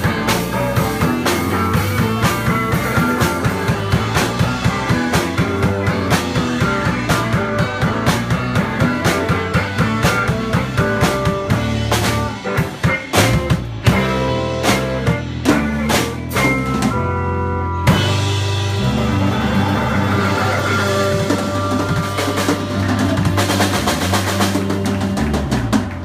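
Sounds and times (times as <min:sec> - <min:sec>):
fast drum rolls: 0:00.0 - 0:16.9, 0:18.0 - 0:26.0
live band music: 0:00.0 - 0:26.0.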